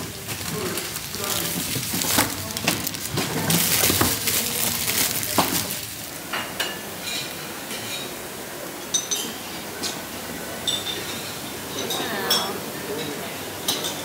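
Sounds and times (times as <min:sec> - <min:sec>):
plastic bag rustling: 0:00.0 - 0:06.5
metal utensils clinking on plates: 0:00.5 - 0:08.2, 0:08.8 - 0:10.0, 0:10.6 - 0:14.0.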